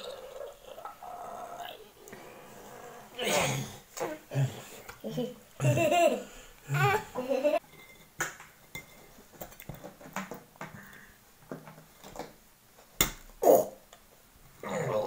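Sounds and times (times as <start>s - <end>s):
voice-like sound: 0.0s - 4.7s
person grunting: 0.0s - 4.8s.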